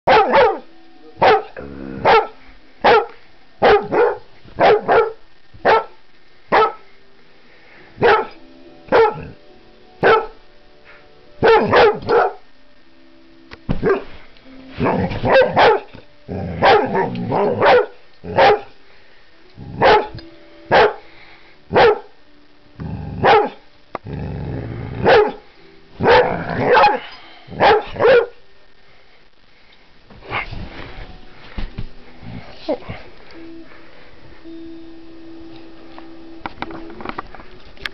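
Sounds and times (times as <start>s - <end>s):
dog barking: 0.1s - 6.8s, 8.0s - 9.4s, 10.0s - 10.4s, 11.4s - 12.4s, 13.8s - 14.0s, 14.8s - 15.9s, 16.6s - 18.7s, 19.8s - 21.0s, 21.7s - 22.1s, 23.2s - 23.6s, 25.0s - 25.4s, 26.0s - 27.0s, 27.6s - 28.4s.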